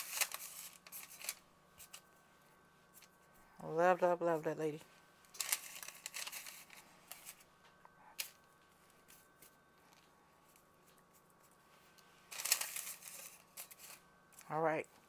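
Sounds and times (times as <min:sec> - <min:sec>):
hands handling dough and paper: 0:00.0 - 0:03.3, 0:05.0 - 0:14.5
faint steady hum: 0:00.0 - 0:15.0.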